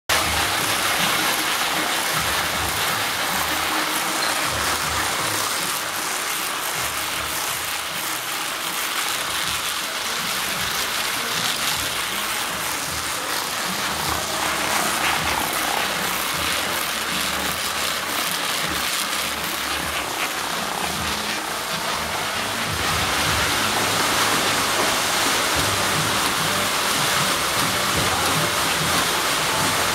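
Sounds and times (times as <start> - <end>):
rope-making machinery running: 0.1 - 29.9.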